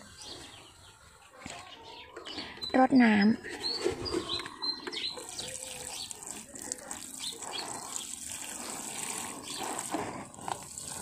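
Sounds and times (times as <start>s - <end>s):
water showering onto soil: 5.0s - 11.0s.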